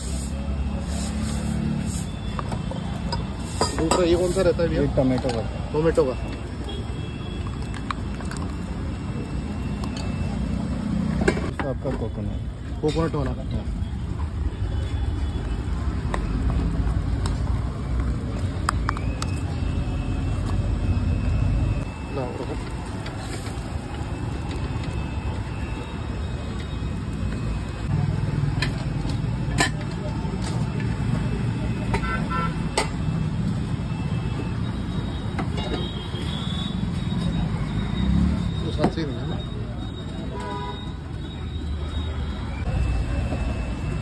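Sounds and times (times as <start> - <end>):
road traffic rumble: 0.0 - 44.0.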